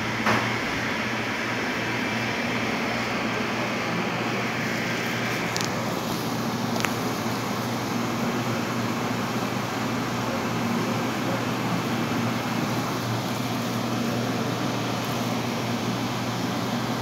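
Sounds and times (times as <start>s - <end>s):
fan hum with airy hiss: 0.0s - 17.0s.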